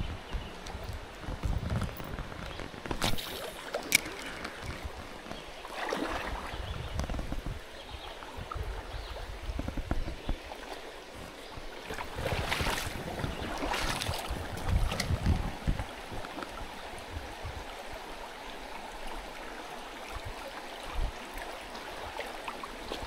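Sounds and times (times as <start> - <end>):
wind on microphone: 0.0 - 10.5, 11.2 - 18.1
creek water over rocks: 0.0 - 23.0.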